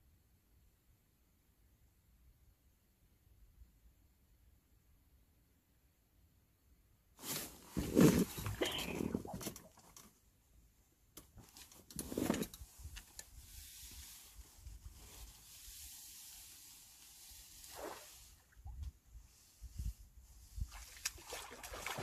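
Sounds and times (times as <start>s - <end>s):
soft hiss: 11.0s - 20.9s.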